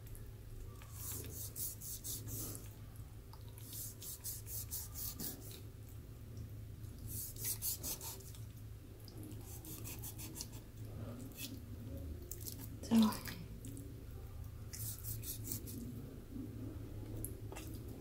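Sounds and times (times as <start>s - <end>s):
low steady hum: 0.0s - 18.0s
knife rasping on pork skin: 7.1s - 8.3s, 9.4s - 10.6s, 14.8s - 15.8s.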